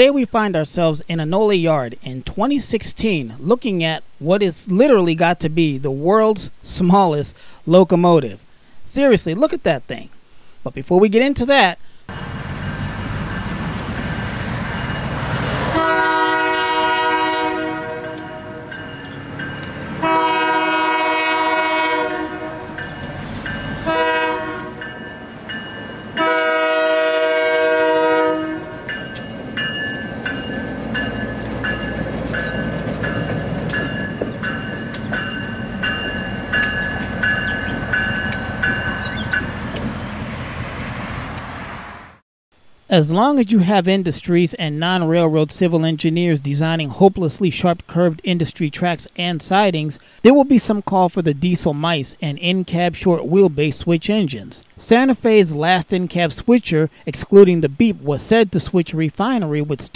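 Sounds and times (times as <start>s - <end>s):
diesel engine rumble: 12.1s - 15.8s
locomotive multi-chime horn: 12.2s - 40.0s.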